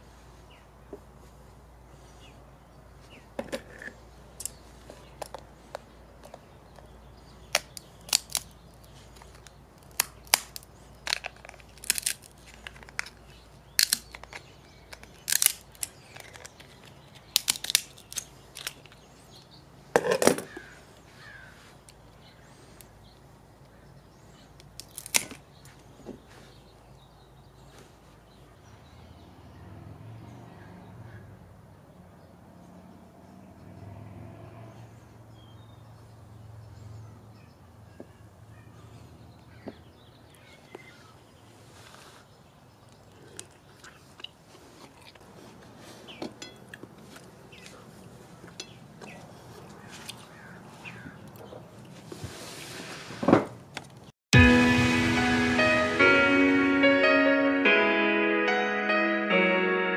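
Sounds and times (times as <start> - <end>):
crab shell cracking and snapping: 7.5 - 19.0, 24.6 - 25.4
kitchen shears snipping: 13.8 - 18.9.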